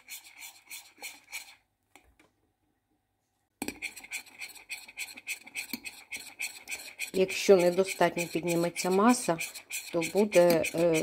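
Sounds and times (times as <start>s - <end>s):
spoon stirring in glass bowl: 0.0s - 1.6s, 3.6s - 11.0s.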